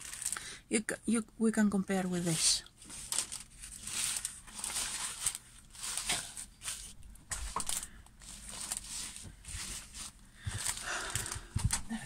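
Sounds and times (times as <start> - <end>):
plastic film and paper crinkling: 0.0 - 0.5, 2.0 - 12.0.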